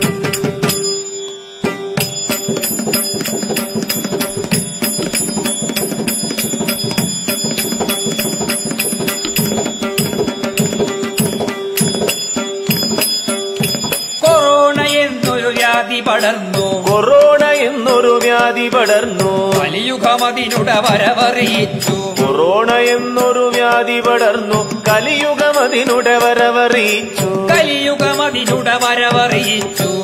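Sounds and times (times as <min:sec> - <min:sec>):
bell-like ringing tones: 0:00.0 - 0:16.8, 0:17.4 - 0:30.0
rapid percussion strokes: 0:00.0 - 0:30.0
person singing: 0:14.2 - 0:30.0.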